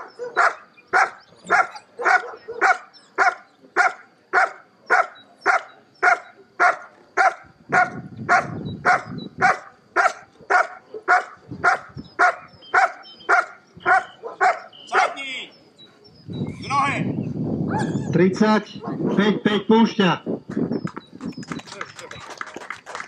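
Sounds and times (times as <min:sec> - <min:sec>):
dog barking rhythmically: 0:00.0 - 0:15.2, 0:18.8 - 0:19.2.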